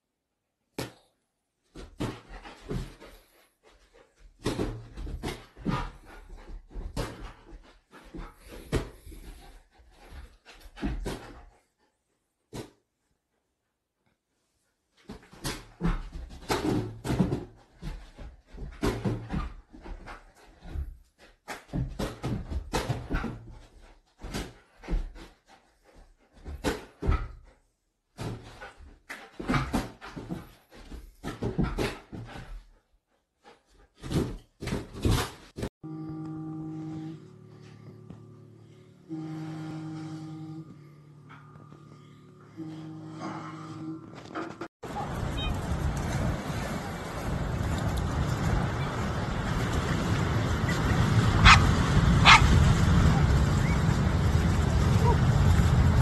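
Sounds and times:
knocks and rustles: 33.6 - 35.7.

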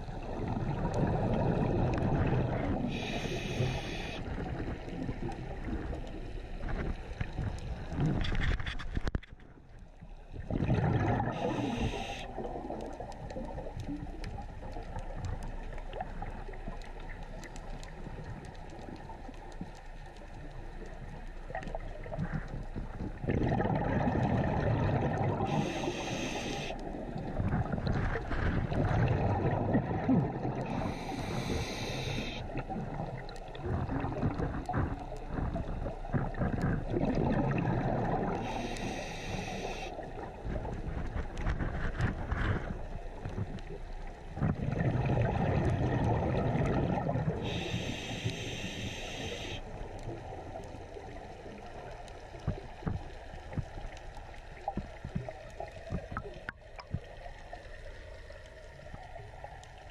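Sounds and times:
bubbling exhaled air: 0.0 - 6.1, 10.3 - 14.0, 21.6 - 43.8, 44.4 - 51.8
regulator inhalation hiss: 2.9 - 4.2, 11.4 - 12.3, 25.5 - 26.9, 30.7 - 32.5, 38.4 - 40.0, 47.4 - 49.8.

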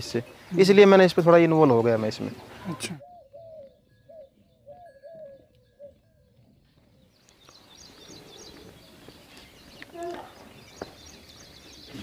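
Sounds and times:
small birds chirping: 0.0 - 12.0
dove cooing: 2.4 - 7.1
light outdoor hiss: 6.7 - 12.0.

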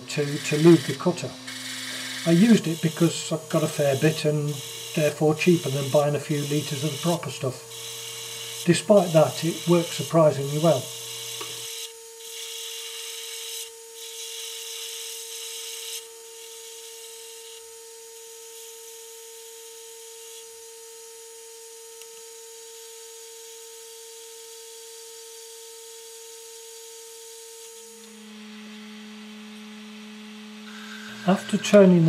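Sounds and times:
metal lathe whining: 0.0 - 13.1, 30.5 - 32.0
cutting tool hissing on steel: 0.0 - 20.6, 30.6 - 32.0.

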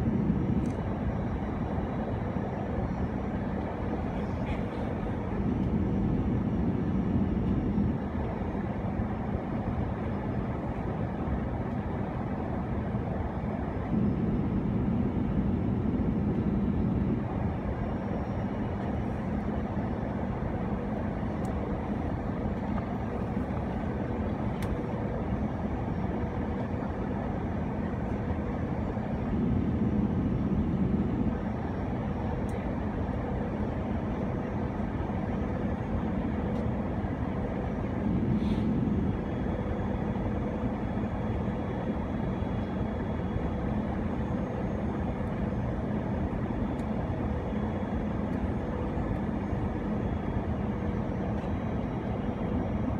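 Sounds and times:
airplane cabin engine roar: 0.0 - 52.9.

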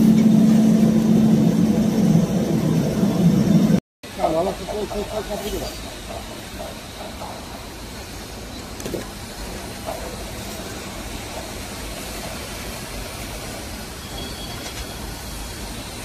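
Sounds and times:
machinery running steadily: 0.0 - 8.6.

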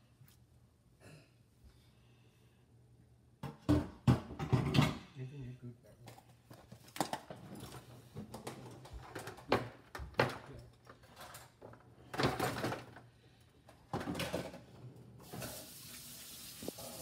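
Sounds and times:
kitchen objects knocking and clattering: 3.4 - 5.1, 6.1 - 13.0, 13.8 - 15.6
steady hiss: 15.2 - 17.0.

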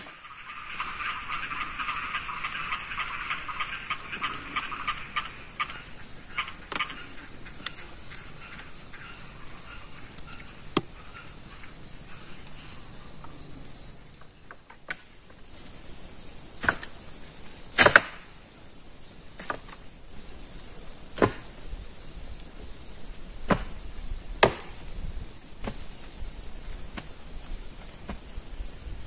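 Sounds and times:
blade chopping wood: 17.8 - 18.2, 21.2 - 21.5, 23.5 - 23.8, 24.4 - 24.8.

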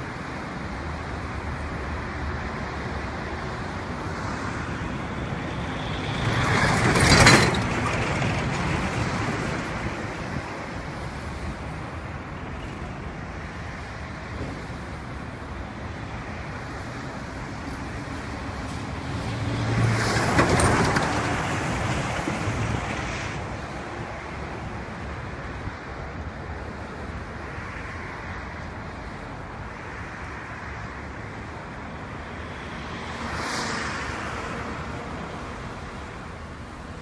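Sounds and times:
road traffic noise: 0.0 - 37.0
truck passing close by: 17.3 - 23.7.

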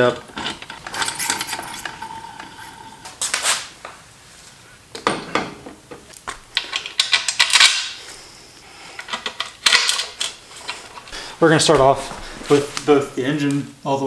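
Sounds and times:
metal tools clinking: 0.0 - 3.2, 6.1 - 11.2.

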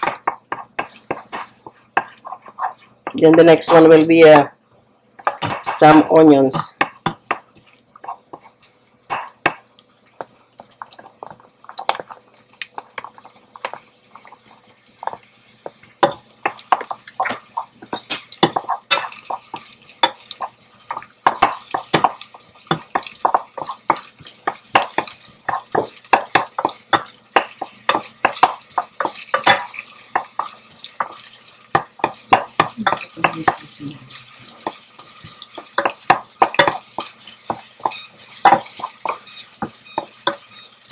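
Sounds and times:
onions sauteing in oil: 0.0 - 40.9
wooden spoon scraping metal pot: 0.5 - 3.9.

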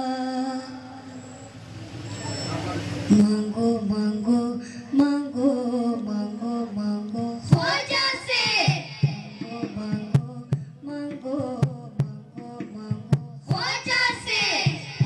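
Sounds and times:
boys singing through pa: 0.0 - 1.4, 3.1 - 15.0
low drone: 0.0 - 7.3.

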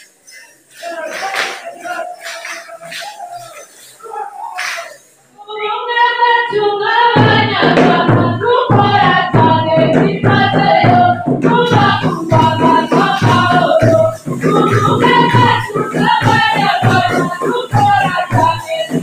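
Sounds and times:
group of voices singing: 0.0 - 19.0
heavy pounding drum beat: 7.2 - 19.0.

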